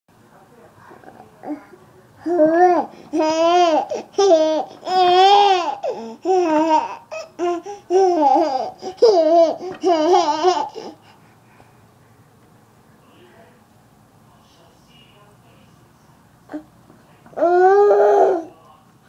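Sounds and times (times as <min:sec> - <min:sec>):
baby laughing: 0:03.2 - 0:11.0.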